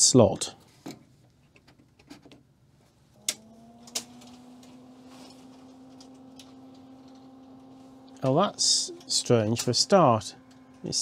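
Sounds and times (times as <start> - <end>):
steady low hum: 3.0 - 11.0.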